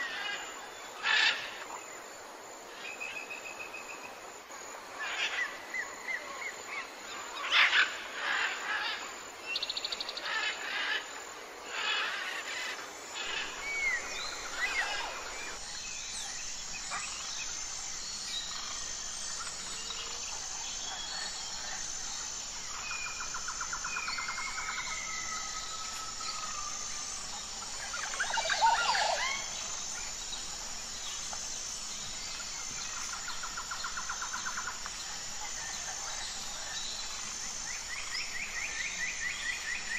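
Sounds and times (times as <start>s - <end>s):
high insect chirp: 0.0s - 39.9s
rapid trilling bird call: 27.6s - 30.1s.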